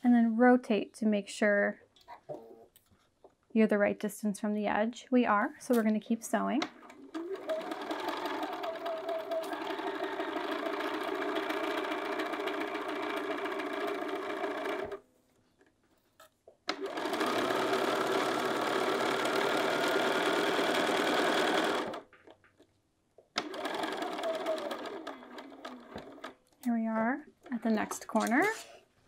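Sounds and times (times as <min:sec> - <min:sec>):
sewing machine stitching: 0:06.6 - 0:15.0, 0:16.7 - 0:22.1, 0:23.4 - 0:26.4.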